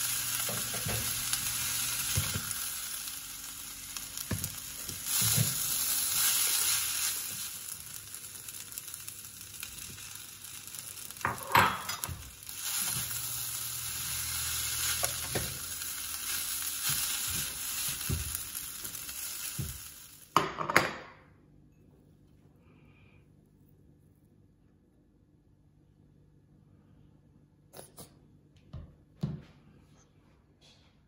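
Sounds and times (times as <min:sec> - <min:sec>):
fried rice sizzling in a skillet: 0:00.0 - 0:20.5.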